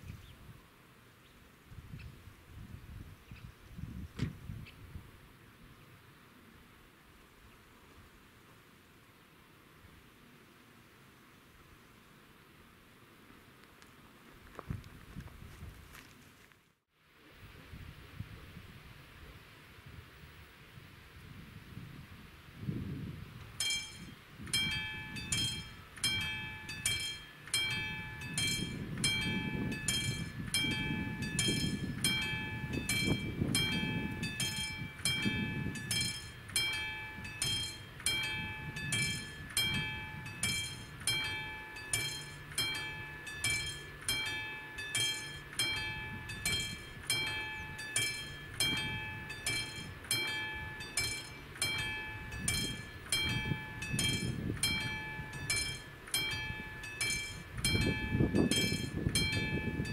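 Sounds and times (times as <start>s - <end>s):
level crossing bell ringing: 23.6s - 59.9s.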